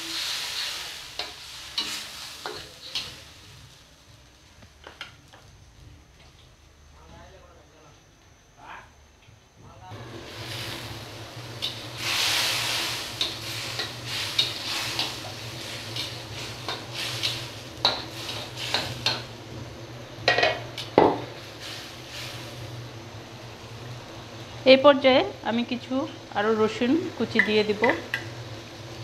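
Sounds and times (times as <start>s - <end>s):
metal spatula scraping wok: 0.0s - 3.5s, 10.3s - 19.3s
curry sizzling hiss: 0.0s - 7.5s, 9.9s - 29.0s
steady low hum: 5.6s - 29.0s.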